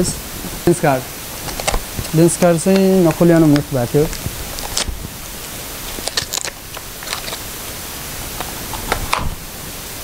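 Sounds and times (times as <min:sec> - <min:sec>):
steady hiss: 0:00.0 - 0:10.0
packaging rustling and clicking: 0:01.4 - 0:05.0, 0:05.9 - 0:07.5.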